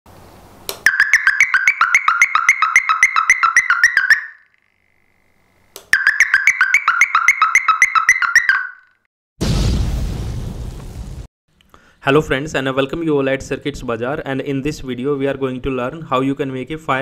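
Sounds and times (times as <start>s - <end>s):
electronic hooter warbling: 0.9s - 4.7s, 6.0s - 9.0s.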